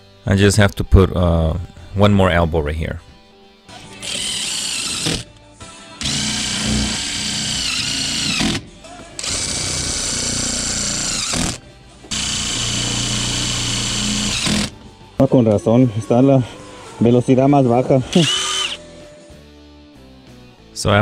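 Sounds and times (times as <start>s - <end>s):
cordless drill driving screws: 3.8s - 5.3s, 6.0s - 8.6s, 9.2s - 14.8s, 18.1s - 18.8s.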